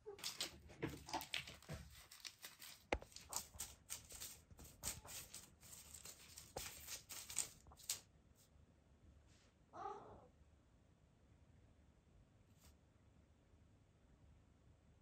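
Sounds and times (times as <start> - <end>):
kitten claws scrabbling on floor: 0.1 - 8.1.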